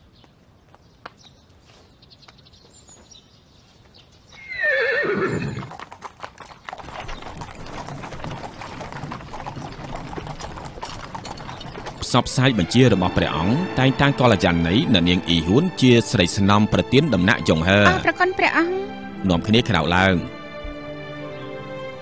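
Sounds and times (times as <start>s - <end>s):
hooves clip-clopping: 0.0s - 18.6s, 19.3s - 21.0s
horse whinnying: 4.4s - 12.2s.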